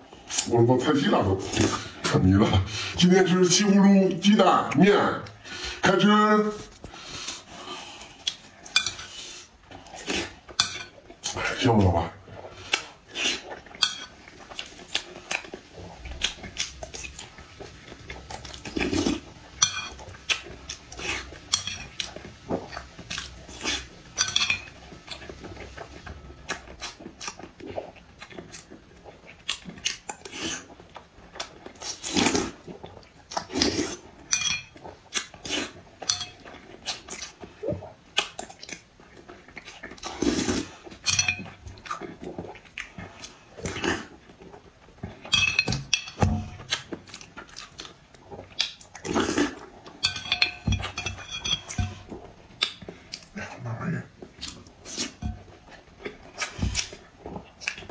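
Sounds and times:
chewing and slurping: 0.0s - 57.9s
metal spoon scraping bowl: 18.4s - 20.2s, 20.8s - 24.9s, 49.5s - 52.2s.

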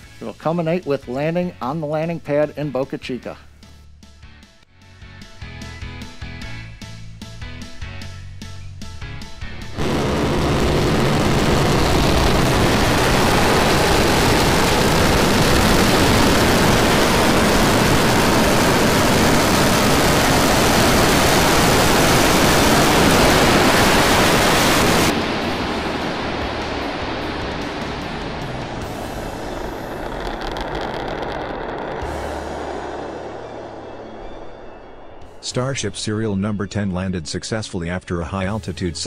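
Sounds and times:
loud rocket engine roar: 9.8s - 36.0s.

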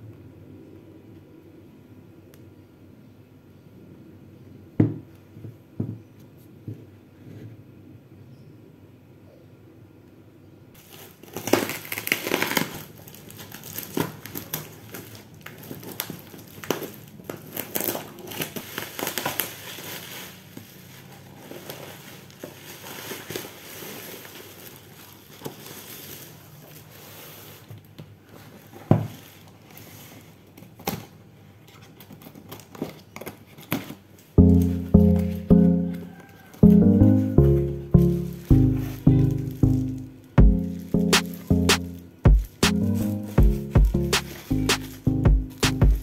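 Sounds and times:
bubble wrap and cardboard crinkling: 10.8s - 46.0s.

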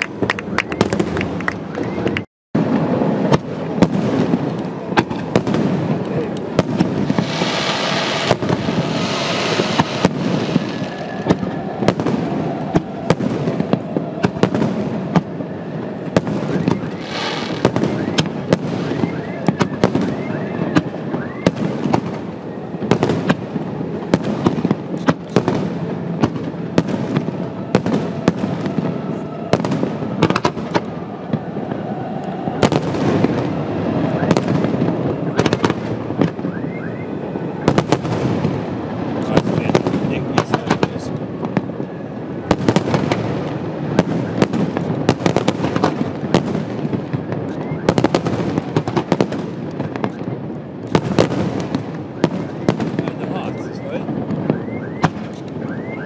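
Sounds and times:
fireworks bangs and crackles: 0.0s - 56.0s.

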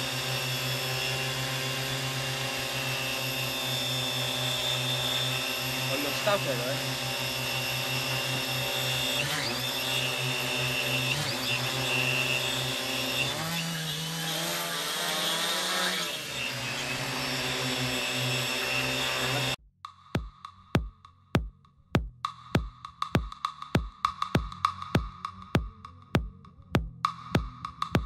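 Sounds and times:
drone propellers whining: 0.0s - 19.6s
electronic music with drum beats: 19.9s - 28.0s.

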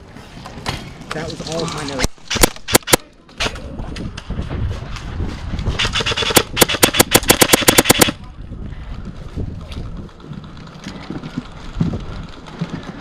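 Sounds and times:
airsoft gun full-auto burst: 5.8s - 8.2s.

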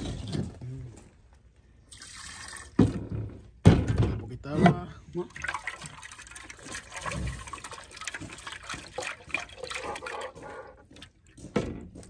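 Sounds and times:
water pouring and sloshing: 1.8s - 3.1s, 4.7s - 12.0s.

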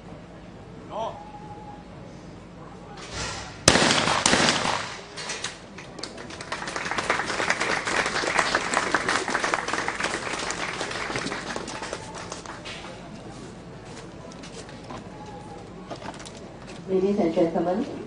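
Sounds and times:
shotgun shots: 3.1s - 5.6s
applause: 5.7s - 13.0s.

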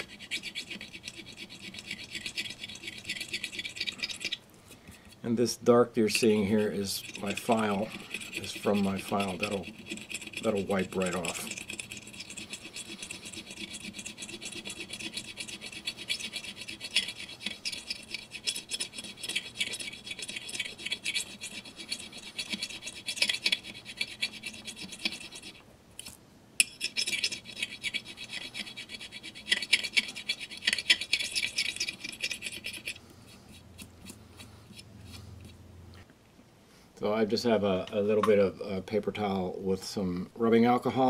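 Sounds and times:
needle file rasping on putty: 0.0s - 4.4s, 6.6s - 25.6s, 26.6s - 34.8s.

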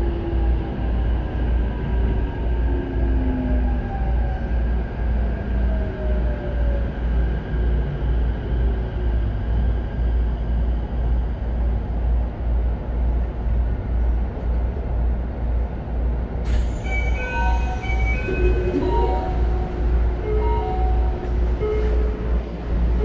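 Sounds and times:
train car low rumble: 0.0s - 23.0s
train doors opening: 16.4s - 23.0s.

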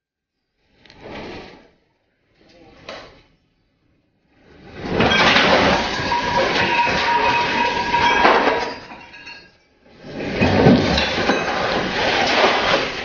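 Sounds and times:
water rushing across deck: 10.1s - 13.0s.

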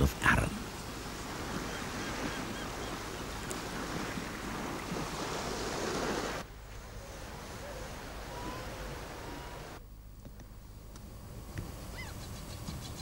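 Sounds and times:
waves washing on shore: 0.0s - 9.8s
faint bird calls: 1.5s - 3.5s, 6.9s - 9.7s, 11.8s - 13.0s.

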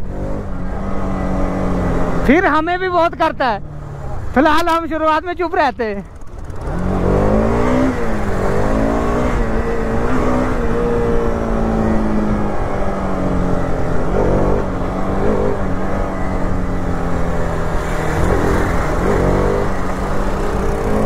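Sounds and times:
motorcycle engine running: 5.7s - 21.0s.

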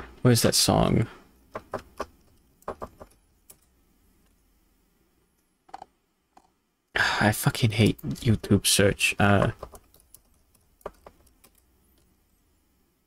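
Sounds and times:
keystrokes on computer keyboard: 1.5s - 3.7s, 9.4s - 12.1s.

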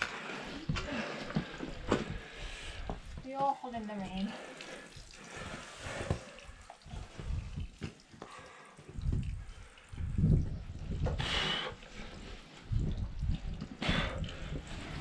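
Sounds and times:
water trickling and dripping: 0.0s - 15.0s
low rumbles on microphone: 9.0s - 11.4s, 12.6s - 15.0s.

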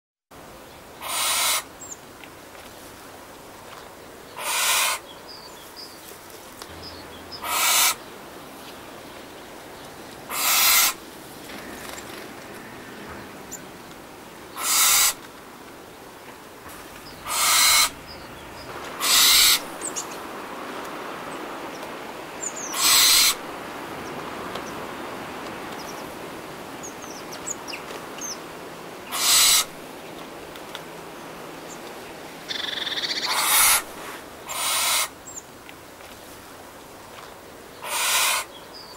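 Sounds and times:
faint background hiss: 0.4s - 38.9s
owl screeching: 1.0s - 1.7s, 4.4s - 5.0s, 7.4s - 8.0s, 10.3s - 11.0s, 14.6s - 15.2s, 17.2s - 18.0s, 19.0s - 19.7s, 22.7s - 23.4s, 29.1s - 29.8s, 32.5s - 33.9s, 34.5s - 35.2s, 37.8s - 38.5s.

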